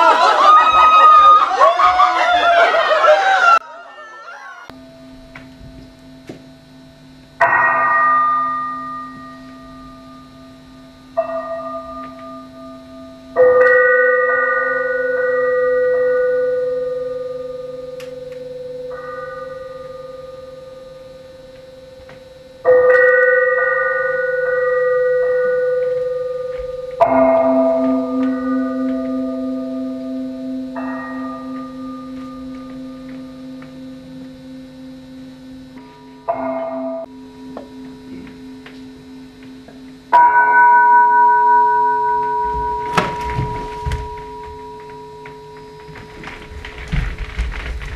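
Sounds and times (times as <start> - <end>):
bell-like struck tones: 4.7 - 46.9
steady low hum: 4.7 - 47.9
metal bell ringing: 40.2 - 46.3.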